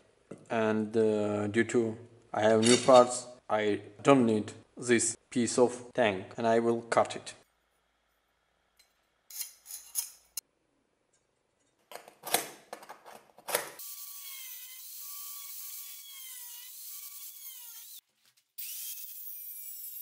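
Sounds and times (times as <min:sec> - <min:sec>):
angle grinder cutting steel: 0:13.8 - 0:18.0, 0:18.6 - 0:20.0.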